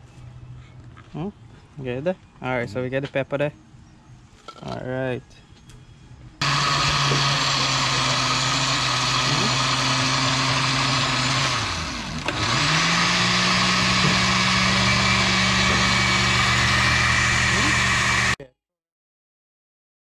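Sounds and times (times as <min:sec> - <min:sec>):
blender motor running: 0:06.4 - 0:18.4.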